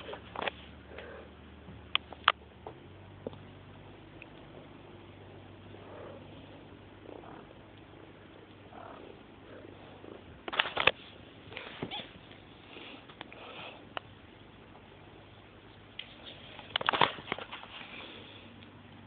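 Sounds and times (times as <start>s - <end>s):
cat purring: 0.0s - 19.0s
kittens scuffling on wooden floor: 16.0s - 18.4s.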